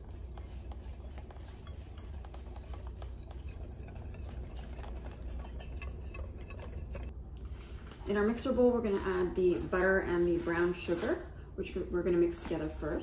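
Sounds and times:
whisk swishing through flour: 0.0 - 7.1
whisk tines ticking on glass: 0.0 - 7.1.

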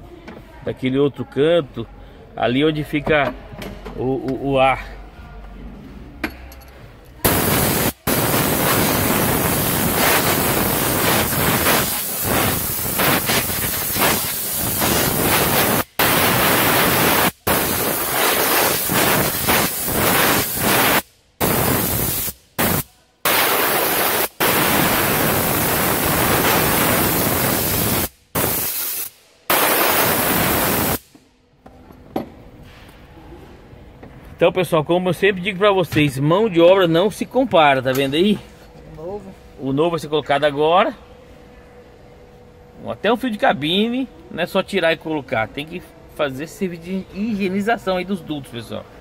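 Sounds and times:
compressed air blow gun hissing: 7.3 - 31.1.

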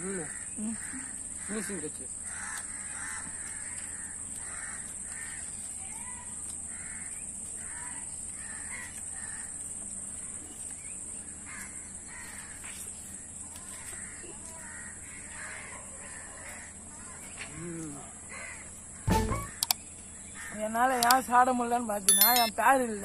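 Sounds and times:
crows cawing: 0.0 - 5.6, 6.7 - 7.8, 8.4 - 9.6, 11.4 - 12.6, 13.8 - 17.1, 18.3 - 18.8.

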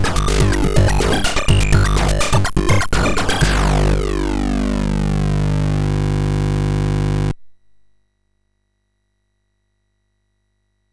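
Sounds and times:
chiptune square-wave tone: 0.0 - 7.4.

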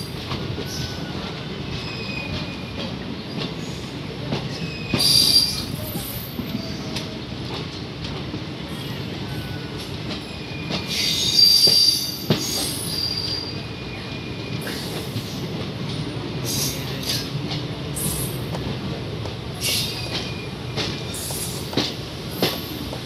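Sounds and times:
train wheels rumbling on rail: 0.0 - 23.0.

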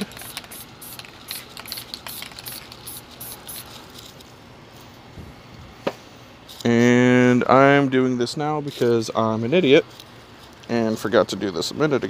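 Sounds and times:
spray paint can hissing: 0.0 - 4.2.

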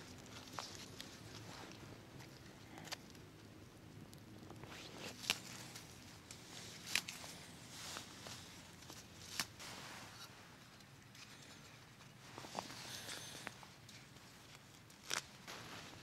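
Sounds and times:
leaves rustling: 4.6 - 16.0
leaf stalks snapping: 5.0 - 10.3, 12.9 - 16.0.

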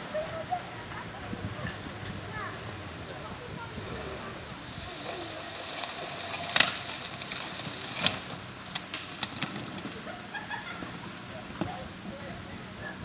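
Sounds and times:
branches and twigs snapping: 4.6 - 10.1.

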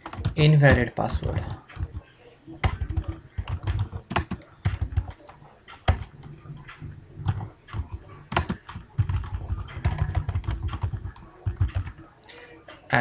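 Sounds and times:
typing on computer keyboard: 0.0 - 2.0, 2.6 - 6.1, 7.2 - 12.0.

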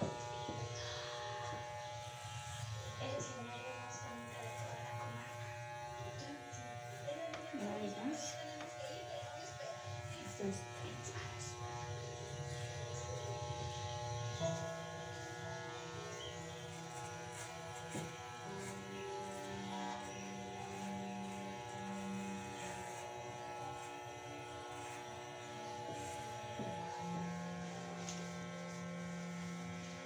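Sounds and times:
electric hair clippers buzzing: 0.0 - 30.0
slow background music: 13.9 - 22.8.

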